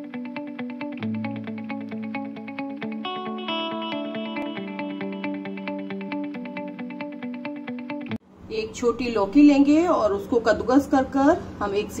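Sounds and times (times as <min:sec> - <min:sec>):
effects-laden guitar picking: 0:00.0 - 0:08.2.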